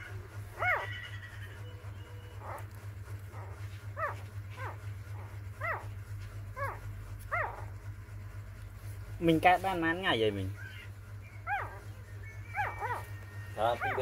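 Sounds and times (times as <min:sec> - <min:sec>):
puppies whimpering: 0:00.0 - 0:06.0, 0:06.6 - 0:07.7, 0:10.4 - 0:14.0.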